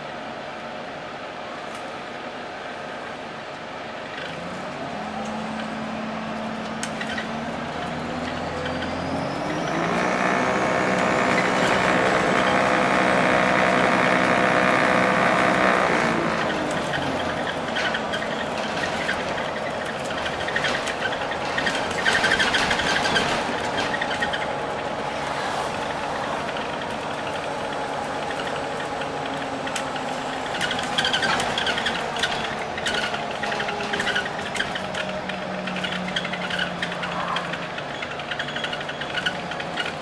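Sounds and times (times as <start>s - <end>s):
bus engine drone: 0.0s - 40.0s
bodywork rattles and clicks: 16.4s - 24.9s, 25.7s - 40.0s.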